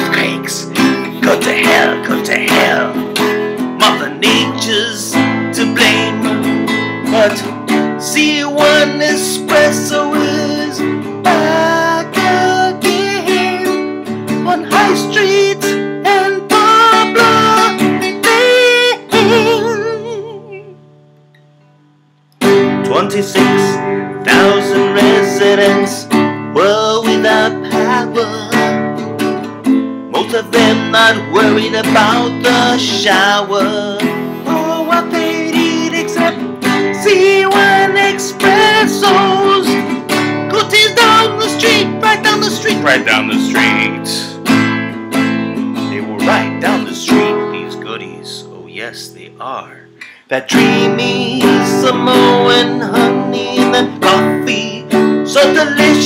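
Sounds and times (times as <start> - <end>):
man singing: 0.0 - 20.8, 22.6 - 29.0, 30.1 - 44.6, 45.6 - 56.0
acoustic guitar strumming: 0.0 - 56.0.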